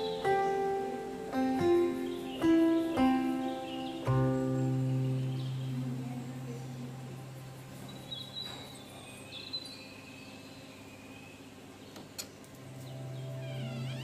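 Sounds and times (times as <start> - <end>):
faint high chirps: 0.0 - 14.0
low hum: 12.4 - 14.0.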